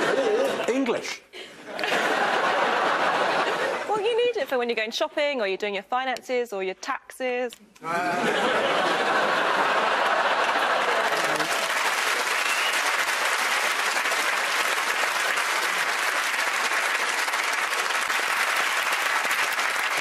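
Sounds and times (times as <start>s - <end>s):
audience clapping: 8.6s - 20.0s.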